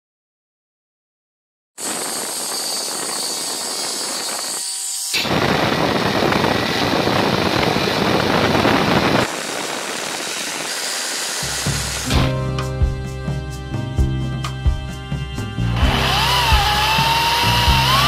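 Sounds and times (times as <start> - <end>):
jigsaw sawing wood: 1.8 - 12.4, 14.4 - 18.0
angle grinder cutting steel rod: 1.8 - 12.7, 13.3 - 18.0.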